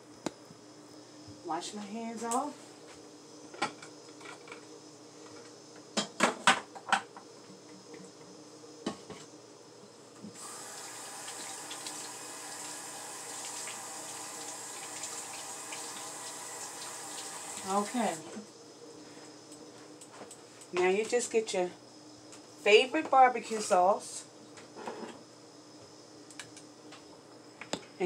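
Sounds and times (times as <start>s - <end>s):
tap water running into sink: 10.4s - 18.2s.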